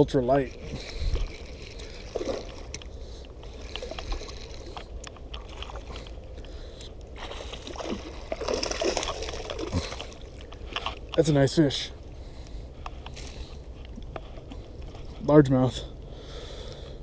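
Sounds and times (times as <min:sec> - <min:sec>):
water sloshing: 0:00.0 - 0:15.2.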